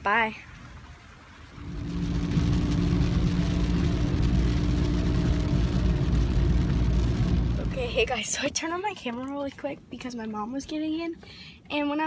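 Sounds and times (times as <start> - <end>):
car engine rumble: 0.6 - 10.0.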